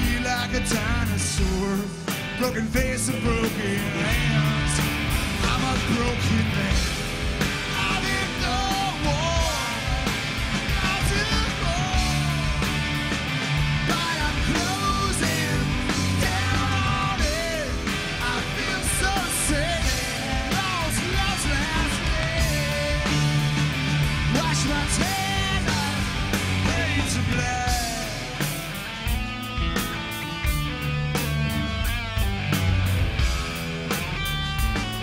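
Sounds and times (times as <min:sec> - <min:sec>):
man singing hard: 0:00.0 - 0:13.0, 0:13.8 - 0:23.6, 0:24.2 - 0:28.5
live rock band playing: 0:00.0 - 0:35.0.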